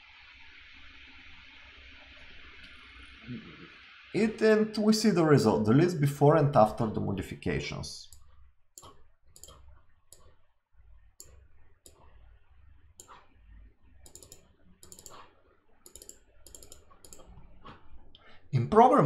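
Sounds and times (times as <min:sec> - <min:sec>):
computer mouse clicks: 0:08.1 - 0:10.4, 0:11.2 - 0:12.3, 0:13.0 - 0:17.8.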